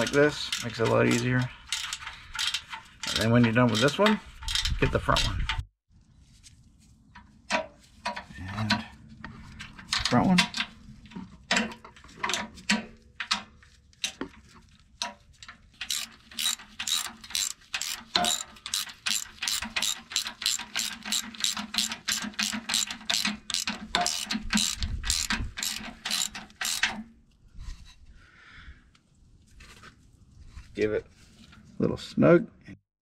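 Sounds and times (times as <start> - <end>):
ratcheting wrench clicking: 0.0 - 5.4, 15.8 - 27.0.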